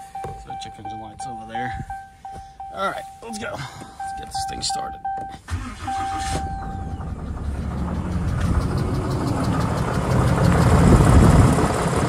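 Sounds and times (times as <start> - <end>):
dashboard chime: 0.0 - 7.0
diesel engine idling with ticking knock: 0.0 - 12.0.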